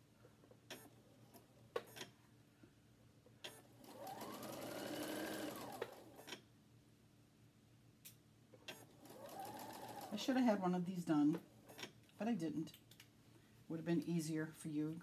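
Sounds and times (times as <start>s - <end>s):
sewing machine clicks: 3.4s - 6.4s, 8.7s - 10.2s
sewing machine stitching: 3.5s - 6.4s, 8.7s - 10.4s.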